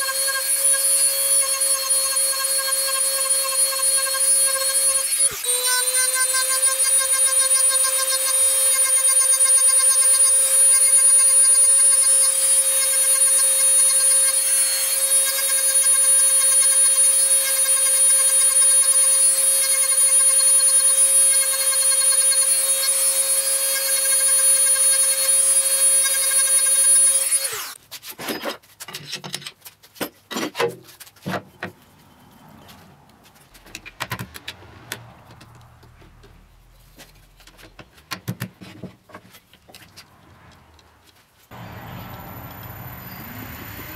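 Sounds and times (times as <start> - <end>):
rotary tool whining: 0.0 - 27.8.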